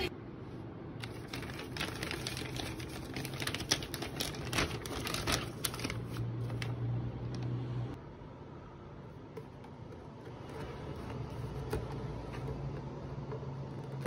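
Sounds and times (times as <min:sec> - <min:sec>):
plastic bag crinkling: 0:01.0 - 0:06.7.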